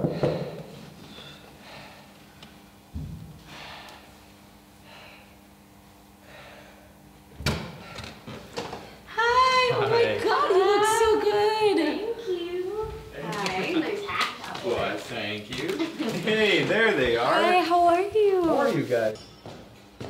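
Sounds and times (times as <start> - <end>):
soft breathing: 0.0 - 2.4, 3.4 - 7.0
low thud: 2.9 - 3.4
thump: 3.0 - 3.3.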